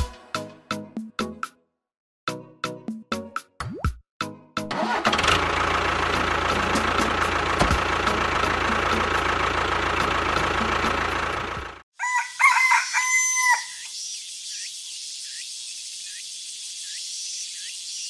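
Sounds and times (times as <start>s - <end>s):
rooster crowing: 12.0s - 13.9s.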